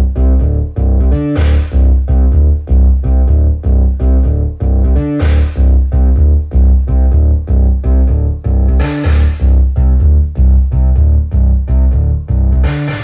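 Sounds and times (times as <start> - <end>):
heavy bass beat from speaker: 0.0 - 13.0.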